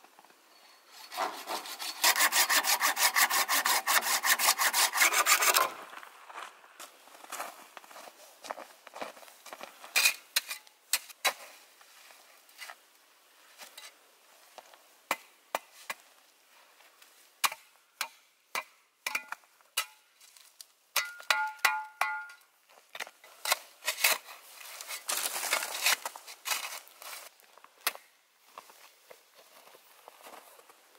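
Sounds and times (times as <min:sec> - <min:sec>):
metal shovel scraping snow: 0:00.5 - 0:05.8, 0:23.3 - 0:27.3.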